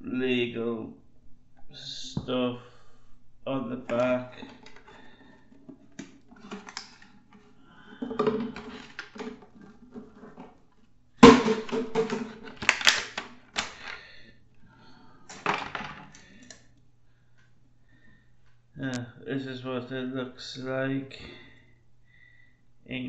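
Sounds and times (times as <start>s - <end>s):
plastic toy clicks and knocks: 11.2s - 14.0s.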